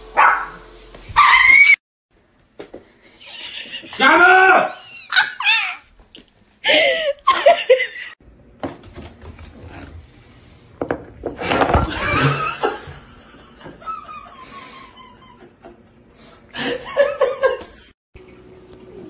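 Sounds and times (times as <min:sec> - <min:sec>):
person's voice outbursts: 0:04.0 - 0:04.8.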